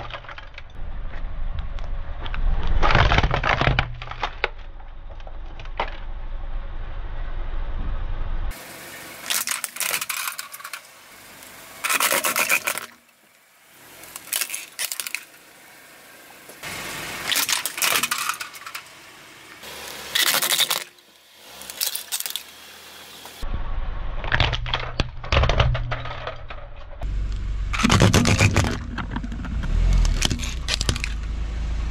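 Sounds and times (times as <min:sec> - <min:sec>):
low rumble: 0:00.0 - 0:03.2, 0:03.8 - 0:08.5, 0:23.4 - 0:31.9
plastic toys crunching under tyre: 0:00.0 - 0:06.2, 0:09.2 - 0:10.8, 0:11.8 - 0:13.1, 0:14.0 - 0:15.4, 0:17.2 - 0:18.9, 0:19.8 - 0:22.6, 0:24.2 - 0:31.3.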